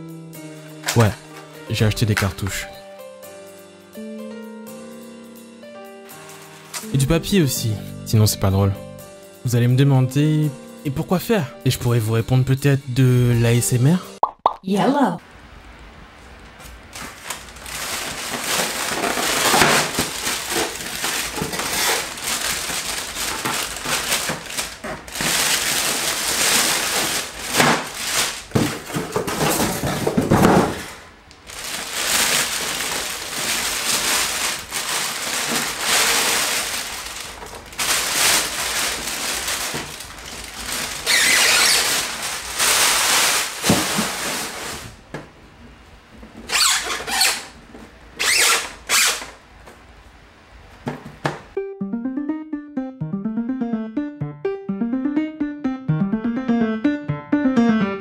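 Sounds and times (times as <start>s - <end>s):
plastic bag crinkling: 6.1s - 6.9s, 16.9s - 45.0s.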